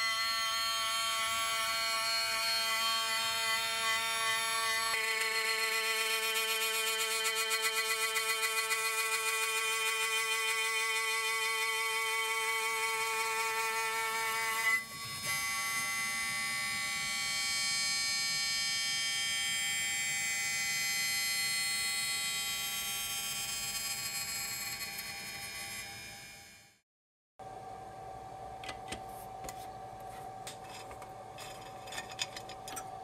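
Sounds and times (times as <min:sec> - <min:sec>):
milling machine ringing whine: 0:14.8 - 0:26.7.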